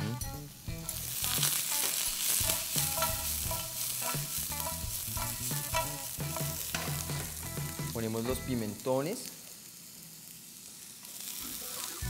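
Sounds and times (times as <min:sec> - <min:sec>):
vegetables sizzling in pan: 0:00.4 - 0:12.0.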